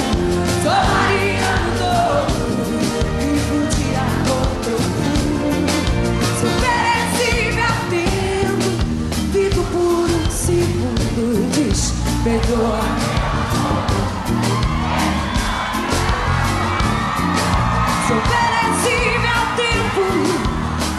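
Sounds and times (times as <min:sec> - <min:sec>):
person singing: 0:00.0 - 0:13.4
driving drumbeat: 0:00.0 - 0:20.9
live band playing pop song: 0:00.0 - 0:20.9.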